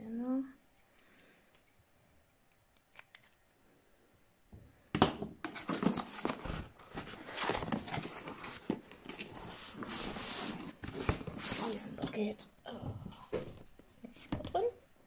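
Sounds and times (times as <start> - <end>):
cardboard rustling and tearing: 5.5 - 12.0.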